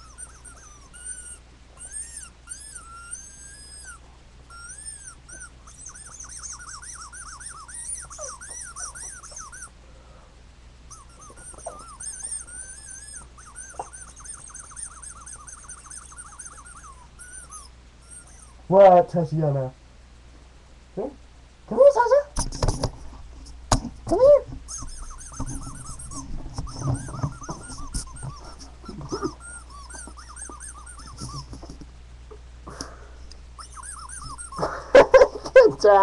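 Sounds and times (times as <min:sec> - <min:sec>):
squeaky toy squeaks: 0:00.0 - 0:09.8, 0:10.9 - 0:18.6, 0:24.1 - 0:31.8, 0:33.6 - 0:36.0.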